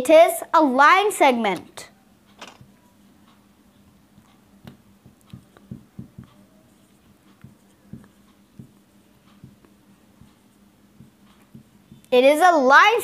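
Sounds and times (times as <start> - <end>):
marker writing on whiteboard: 2.6 - 12.2.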